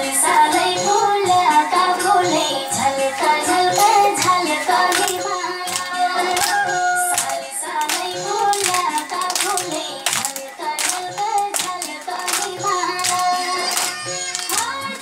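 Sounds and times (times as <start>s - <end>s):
person singing children's song: 0.0s - 15.0s
hand claps: 3.7s - 15.0s.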